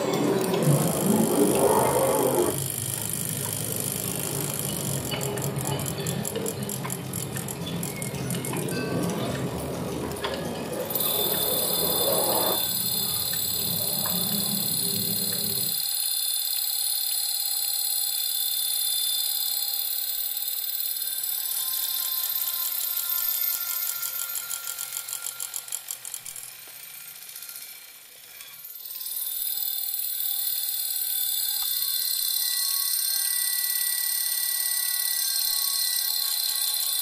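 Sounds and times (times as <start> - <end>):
low rumbling noise: 0.0 - 15.8
piercing high steady tones: 0.0 - 25.6, 30.0 - 37.0.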